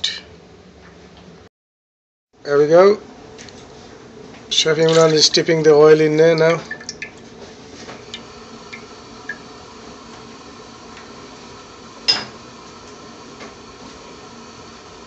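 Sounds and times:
steady low hum: 2.4s - 15.0s.

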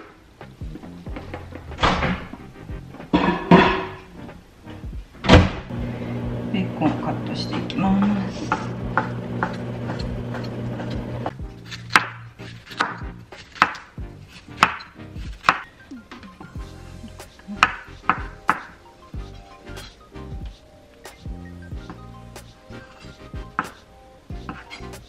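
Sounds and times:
background music: 0.0s - 25.0s
knife chopping on wooden board: 8.5s - 15.7s, 17.6s - 18.8s, 23.0s - 23.8s, 24.4s - 25.0s.

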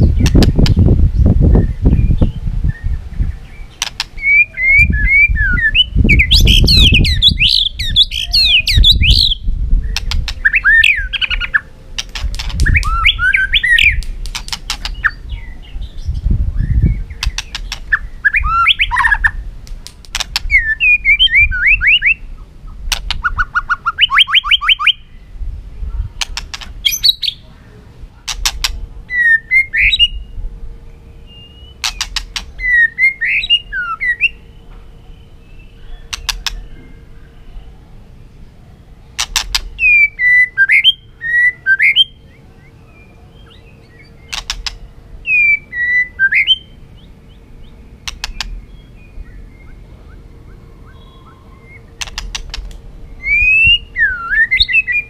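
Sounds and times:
bird singing whistled phrases: 1.6s - 11.7s, 12.6s - 14.0s, 14.9s - 19.4s, 20.5s - 22.4s, 23.2s - 25.2s, 26.9s - 27.4s, 29.1s - 30.3s, 31.1s - 37.8s, 39.8s - 44.4s, 45.2s - 47.4s, 48.2s - 52.1s, 53.1s - 55.0s
sharp clicks: 3.8s - 4.2s, 9.9s - 10.4s, 12.0s - 13.0s, 13.9s - 15.1s, 17.2s - 17.9s, 19.6s - 20.5s, 26.2s - 26.8s, 28.3s - 28.8s, 31.8s - 32.6s, 36.1s - 36.6s, 39.2s - 39.7s, 44.3s - 44.8s, 48.0s - 48.6s, 52.0s - 52.8s.

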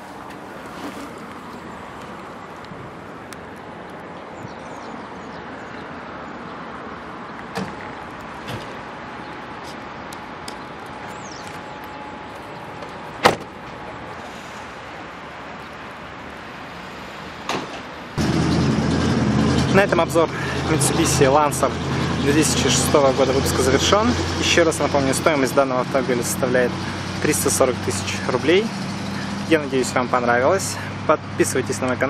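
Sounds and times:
outdoor background noise: 0.0s - 32.0s.

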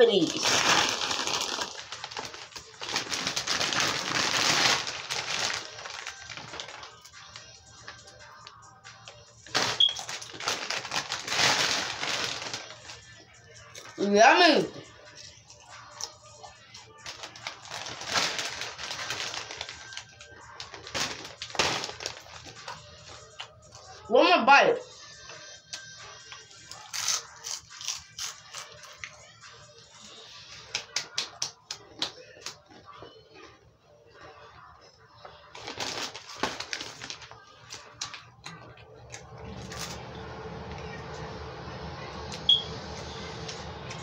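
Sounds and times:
chip bag crinkling: 0.0s - 14.0s, 15.8s - 23.9s, 26.1s - 29.2s, 35.5s - 41.6s.

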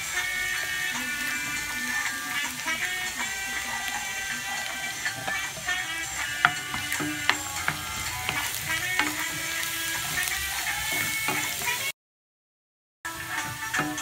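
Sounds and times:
garlic sizzling in hot oil: 0.0s - 11.9s, 13.1s - 14.0s
spatula stirring and scraping: 0.0s - 11.9s
spatula clicking on pan: 3.8s - 11.8s.

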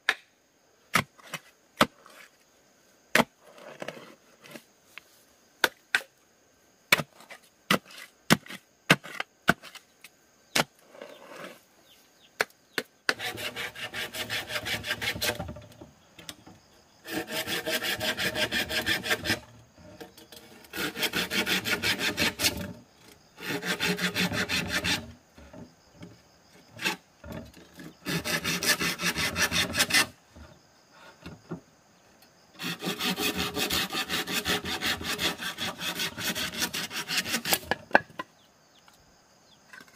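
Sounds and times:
saw cutting bamboo: 13.1s - 15.7s, 17.0s - 22.8s, 23.4s - 25.6s, 26.7s - 30.2s, 32.6s - 38.0s.

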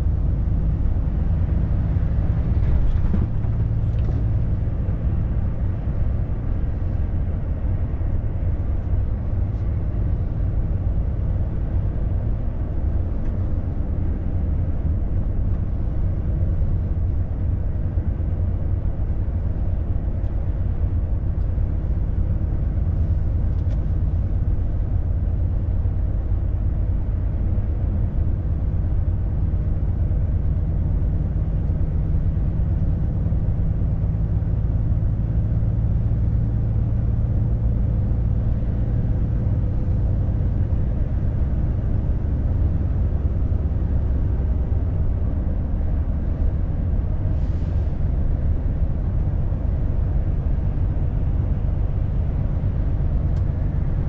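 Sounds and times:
truck diesel engine drone: 0.0s - 54.0s
tyre road noise: 0.0s - 54.0s.

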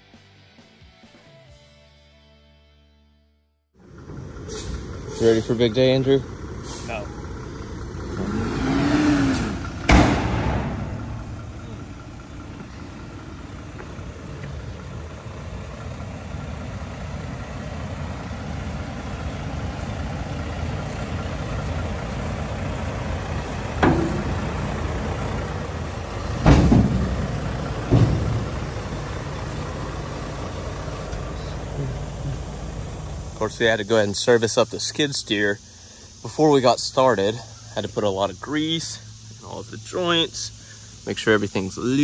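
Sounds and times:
diesel truck engine running: 3.8s - 42.0s
loud bangs: 9.2s - 11.9s, 23.6s - 29.6s.

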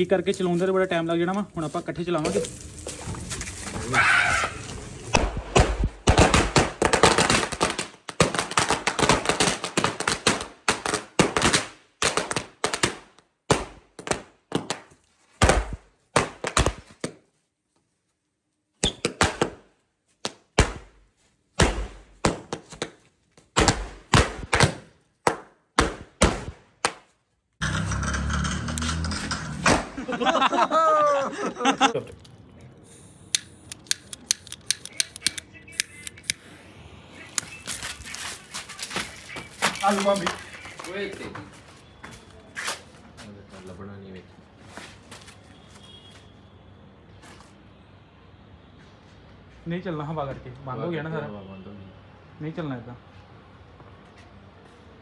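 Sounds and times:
firecrackers banging: 4.5s - 14.7s, 27.6s - 30.6s.

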